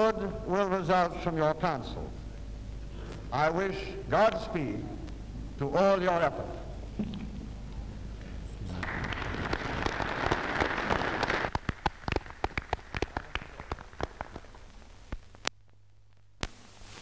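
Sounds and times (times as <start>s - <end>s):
audience applauding: 8.7s - 14.6s.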